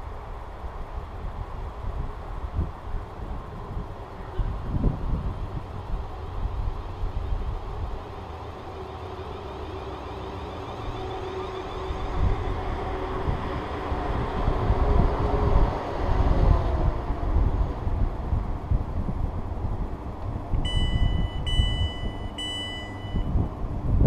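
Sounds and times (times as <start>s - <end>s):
train wheels rumbling on rail: 0.0s - 24.0s
electric train whine: 6.0s - 17.9s.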